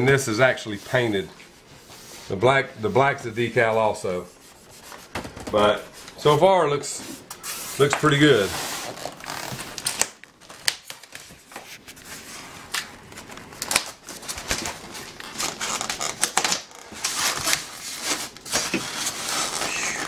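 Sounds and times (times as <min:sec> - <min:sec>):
wrapping rustling: 0:07.3 - 0:20.0
styrofoam inserts clicking and scraping: 0:08.8 - 0:11.6, 0:12.7 - 0:20.0.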